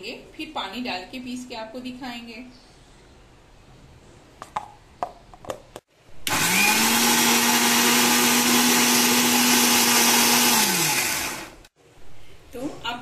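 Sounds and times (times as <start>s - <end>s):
mixer grinder motor whirring: 6.2s - 11.7s.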